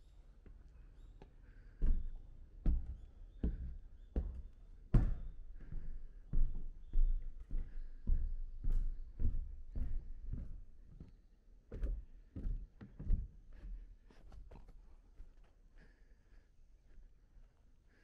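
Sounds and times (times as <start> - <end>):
footsteps on wooden floorboards: 1.2 - 14.7.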